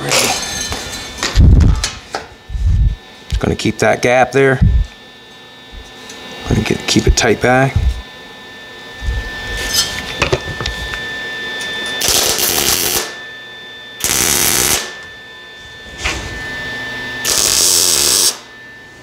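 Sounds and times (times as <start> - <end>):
welder tack welding: 12.0 - 13.2, 14.0 - 14.9, 17.2 - 18.4.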